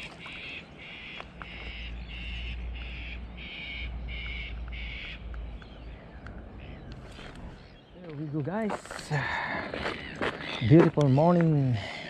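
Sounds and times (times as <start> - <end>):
bird calling harsh repeated notes: 0.0 - 8.0.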